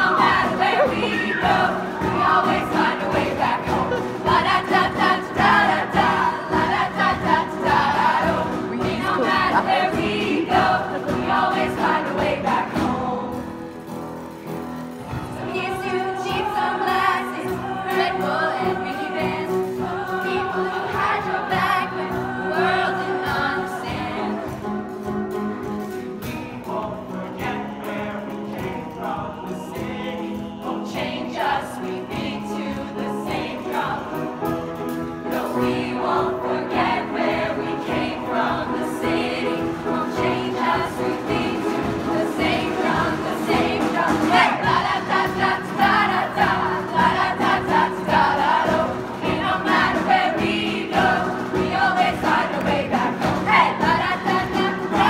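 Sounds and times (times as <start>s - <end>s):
choir singing in harmony: 0.0s - 55.0s.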